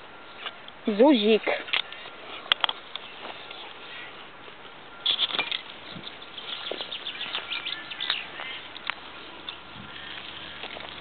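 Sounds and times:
footsteps crackling through dry leaves: 0:05.2 - 0:11.0.

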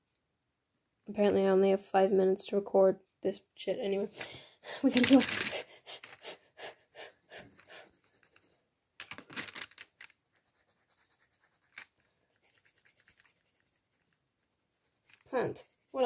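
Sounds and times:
pencil scratching on paper: 0:05.9 - 0:08.6, 0:10.3 - 0:16.0.

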